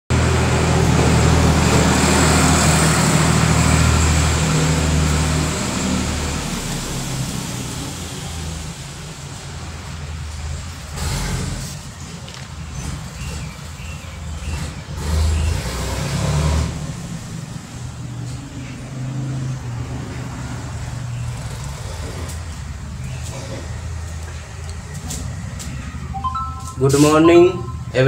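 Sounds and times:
brief noise: 26.2 - 28.0.

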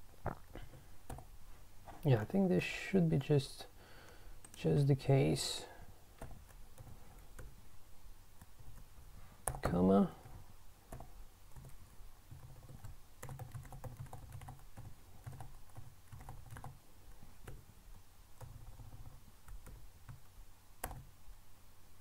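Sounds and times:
keyboard typing: 1.0 - 1.3, 8.4 - 16.8, 18.4 - 21.1.

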